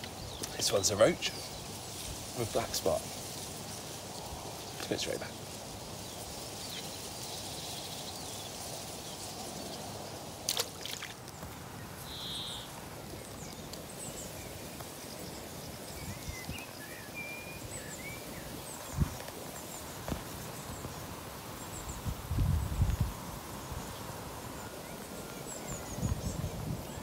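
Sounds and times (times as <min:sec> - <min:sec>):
steady background hiss: 0:00.0 - 0:27.0
faint bird chirps: 0:12.0 - 0:12.7.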